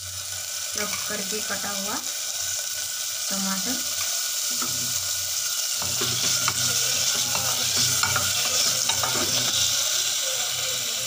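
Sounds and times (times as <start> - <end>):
tomato sizzling in hot oil: 0.0 - 11.0
wooden spatula scraping pot: 5.8 - 9.8.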